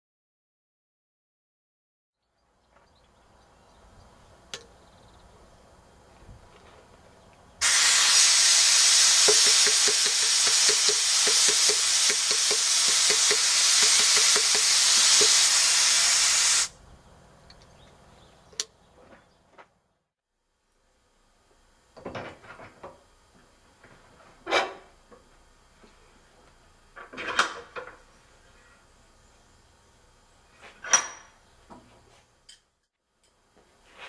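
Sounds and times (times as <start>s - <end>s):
air hammer hissing: 7.6s - 16.8s.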